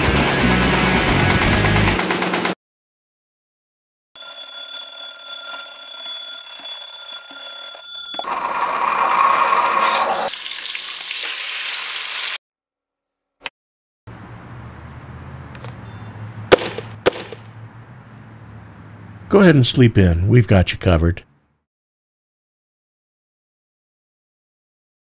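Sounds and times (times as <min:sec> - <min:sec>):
alarm clock ringing: 0:04.2 - 0:08.7
bacon and egg sizzling: 0:08.3 - 0:12.4.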